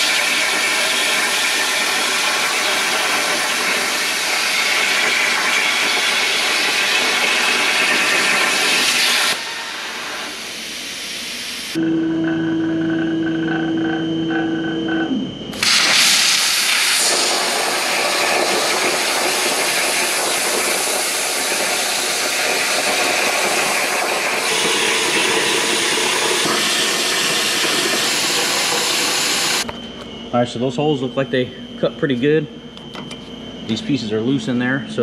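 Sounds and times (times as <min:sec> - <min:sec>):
plasma torch hissing: 0:00.0 - 0:11.8, 0:15.5 - 0:29.6
machine hum: 0:00.0 - 0:15.6, 0:16.7 - 0:35.0
short beeps: 0:11.8 - 0:15.4.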